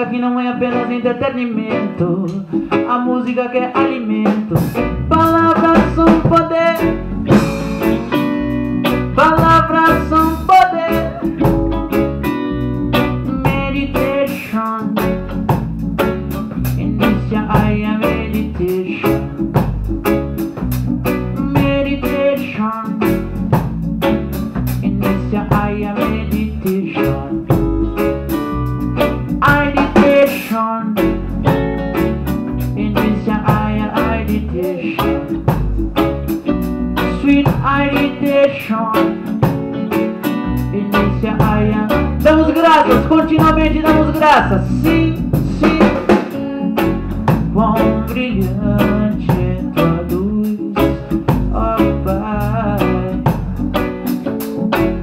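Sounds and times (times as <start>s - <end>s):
electric guitar: 0.0s - 55.0s
live band playing: 0.0s - 55.0s.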